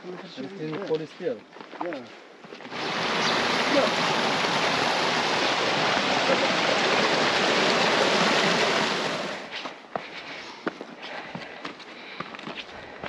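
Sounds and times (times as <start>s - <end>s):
stream water rushing: 2.6s - 9.6s.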